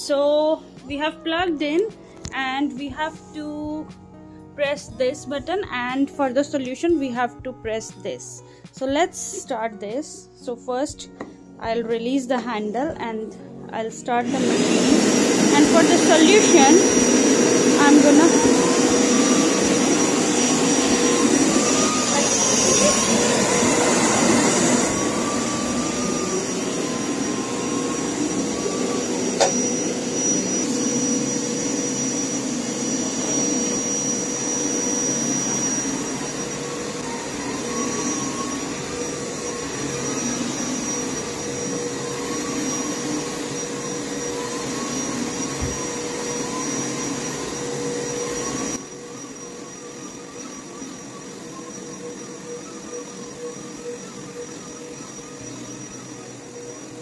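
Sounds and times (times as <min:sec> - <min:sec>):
carpet cleaner motor whine: 0:14.1 - 0:57.0.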